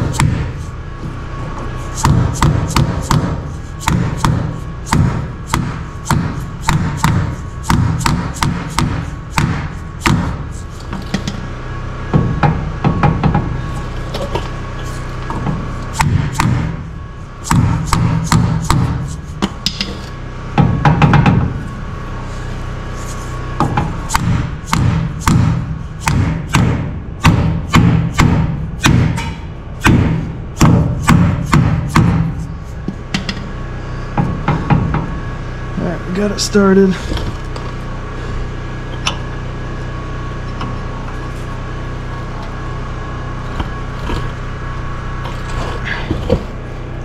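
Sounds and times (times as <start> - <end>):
hammer blows: 0.0 - 11.5, 15.3 - 21.6, 23.5 - 35.4.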